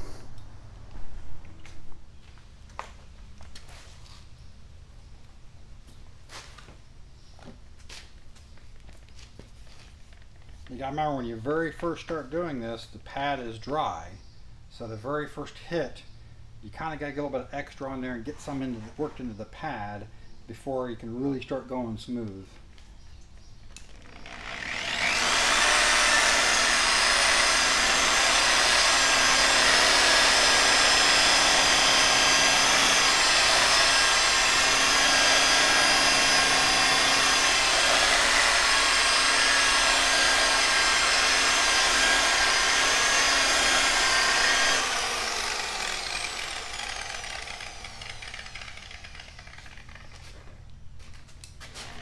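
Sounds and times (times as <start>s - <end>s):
electric polisher motor running: 24.2s - 50.3s.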